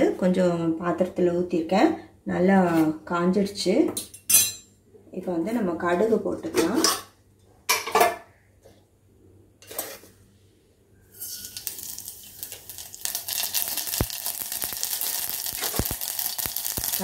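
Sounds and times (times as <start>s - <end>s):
mustard seeds sizzling in oil: 11.1s - 17.0s.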